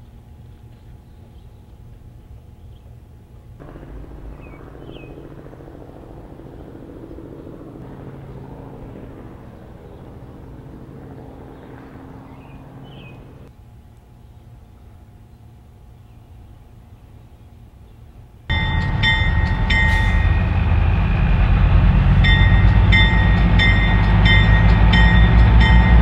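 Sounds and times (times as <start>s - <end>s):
diesel engine running: 3.6s - 13.5s, 18.5s - 26.0s
bird chirps: 3.7s - 13.5s.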